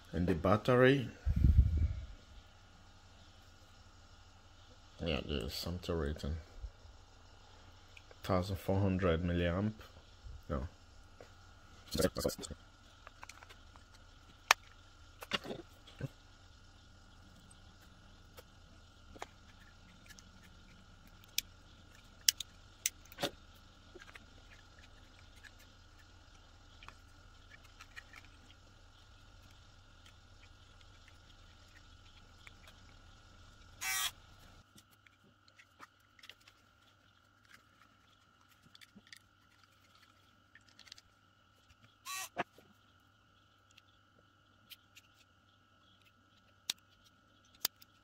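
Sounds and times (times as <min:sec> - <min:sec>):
low background hum: 0:00.0 - 0:48.0
small plastic parts clicking: 0:19.1 - 0:28.6, 0:45.9 - 0:48.0.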